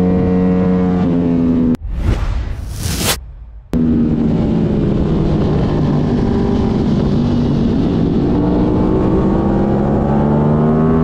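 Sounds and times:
motorcycle engine at high revs: 0.0 - 1.8, 3.8 - 11.0.

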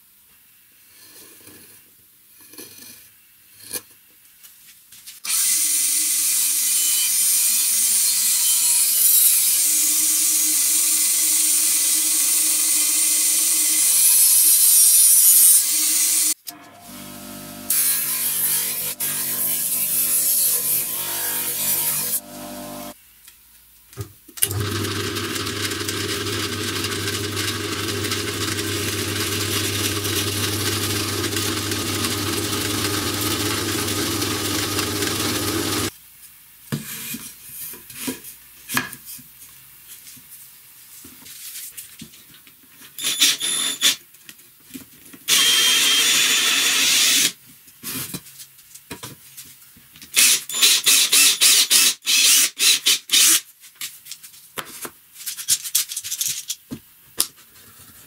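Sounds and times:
power tool running: 15.6 - 23.0, 24.4 - 35.9, 45.3 - 47.3
drill press motor hum: 16.5 - 17.8, 24.4 - 35.9
cordless drill bursts: 43.0 - 44.0, 45.3 - 47.4, 50.2 - 53.4.

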